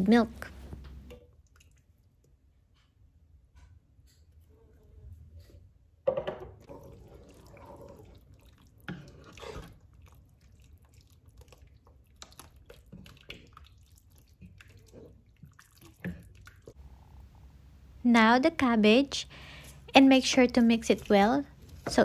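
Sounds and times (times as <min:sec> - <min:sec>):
soup sloshing: 0:06.6 - 0:17.1.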